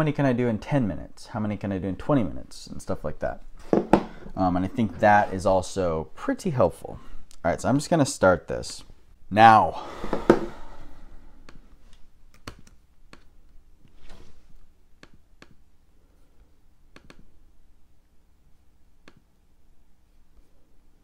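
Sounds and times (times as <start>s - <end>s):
computer mouse clicks: 16.9s - 17.3s, 19.0s - 19.2s.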